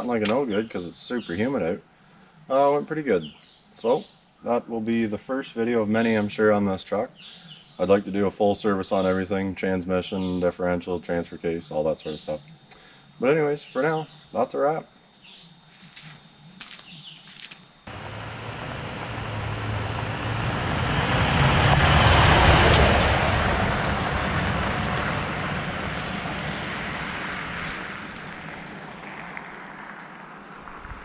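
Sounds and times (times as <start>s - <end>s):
faint crickets: 0.0s - 31.0s
diesel truck engine rumble: 17.9s - 29.0s.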